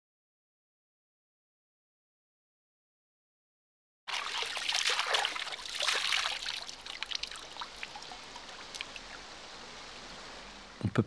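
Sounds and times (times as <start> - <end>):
water splashing from hands: 4.1 - 8.1
stream trickling: 4.1 - 10.8.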